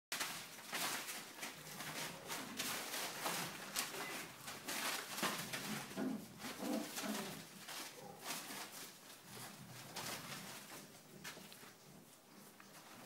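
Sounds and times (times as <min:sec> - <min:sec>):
paper rustling and crinkling: 0:00.1 - 0:13.0
puppies scampering on newspaper: 0:00.1 - 0:13.0
low puppy vocalizations: 0:06.0 - 0:08.3.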